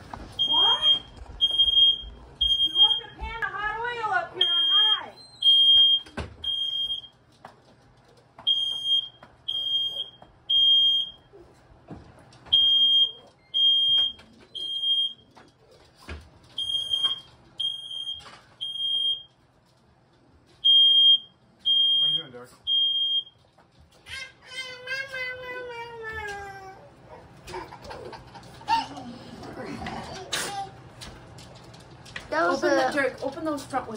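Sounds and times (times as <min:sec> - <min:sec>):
smoke detector alarm beeps: 0:00.4 - 0:03.3, 0:04.4 - 0:07.2, 0:08.5 - 0:11.3, 0:12.5 - 0:15.2, 0:16.6 - 0:19.4, 0:20.6 - 0:23.4.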